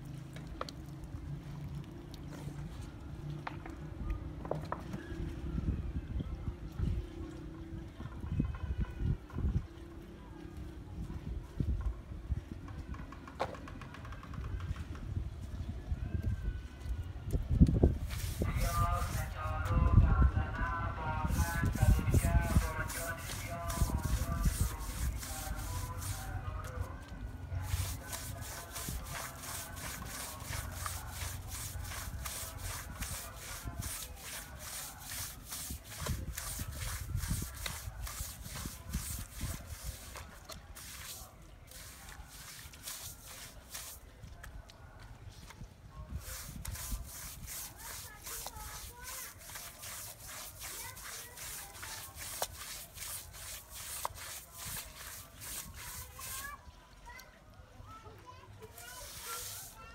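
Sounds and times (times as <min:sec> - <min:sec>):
push broom scrubbing wet rug: 0:17.9 - 0:19.8, 0:21.0 - 0:26.9, 0:27.6 - 0:44.1, 0:46.2 - 0:56.6, 0:58.7 - 0:59.9.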